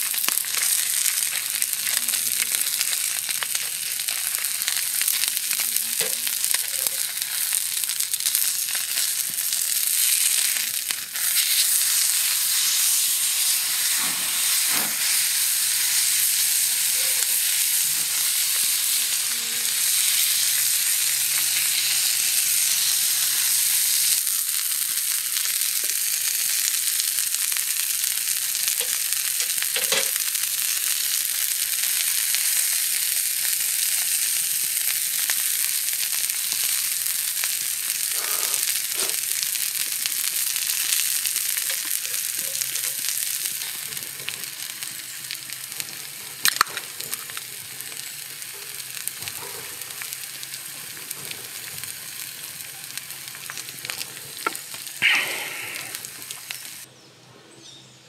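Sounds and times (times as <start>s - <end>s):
steak sizzling on a griddle: 0.0s - 56.9s
fat popping: 54.4s - 56.7s.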